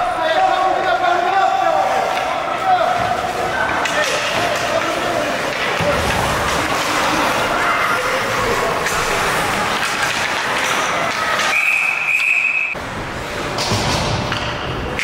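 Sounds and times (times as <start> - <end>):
ice rink background noise: 0.0 - 15.0
referee's whistle: 11.5 - 12.8.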